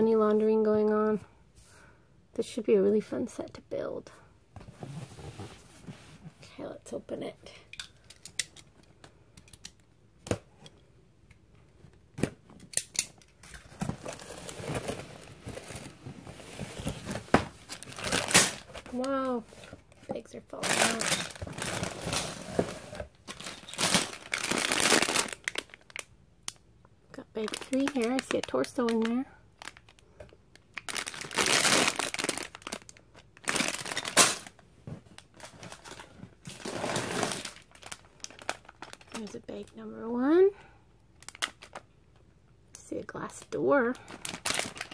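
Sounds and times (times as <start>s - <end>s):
cardboard rustling and scraping: 4.6s - 6.4s, 13.6s - 19.9s, 20.8s - 24.2s
plastic bags of bricks crinkling: 13.7s - 19.4s, 20.2s - 26.1s, 27.1s - 34.6s, 35.2s - 39.9s, 41.2s - 41.9s, 44.0s - 44.9s.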